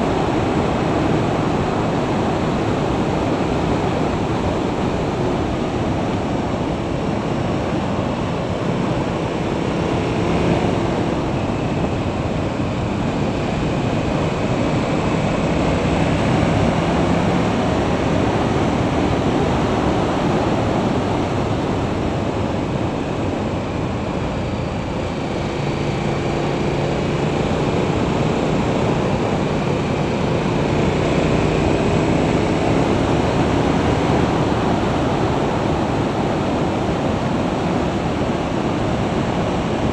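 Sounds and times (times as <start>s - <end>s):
motorcycle engine hum: 0.0s - 39.9s
wind rush over microphone: 0.0s - 39.9s.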